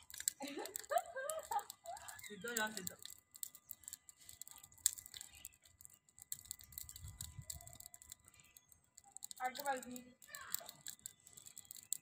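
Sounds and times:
fire popping: 0.0s - 12.0s
wood fire crackling: 0.0s - 12.0s.

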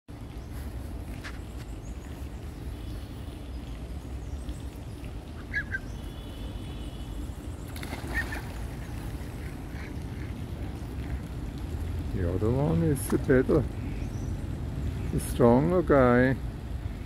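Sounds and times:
ducks calling: 5.4s - 6.7s
wings flapping: 7.8s - 10.3s.

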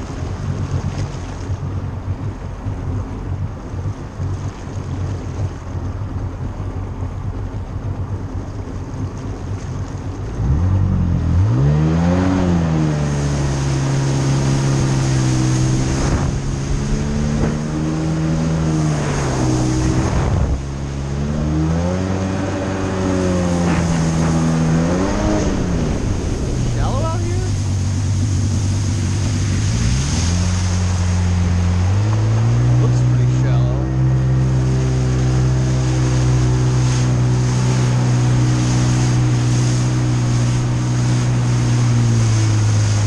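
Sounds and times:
water and wind noise: 0.0s - 43.0s
watercraft engine revving: 0.0s - 43.0s.

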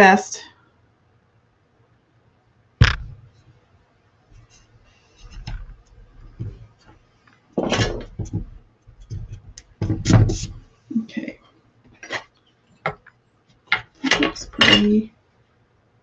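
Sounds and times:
tools tapping and scraping: 4.4s - 7.0s, 7.6s - 10.6s, 11.9s - 15.0s
tools knocking on tabletop: 7.6s - 10.5s.

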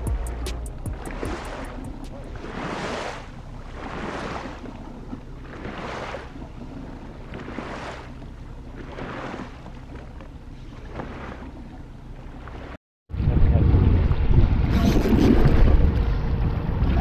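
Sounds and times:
water washing against boat hull: 0.0s - 12.8s
outboard motor humming: 0.0s - 17.0s
wind buffeting microphone: 13.1s - 17.0s.

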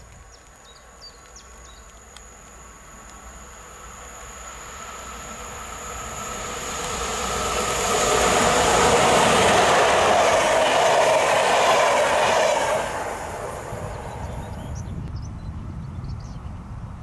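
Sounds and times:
train wheels on rails: 0.0s - 14.9s
electric locomotive running: 0.0s - 15.1s.

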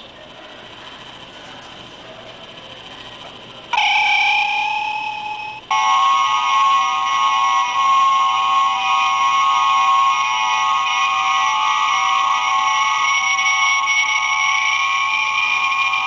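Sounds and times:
high electronic tones: 3.8s - 16.0s.

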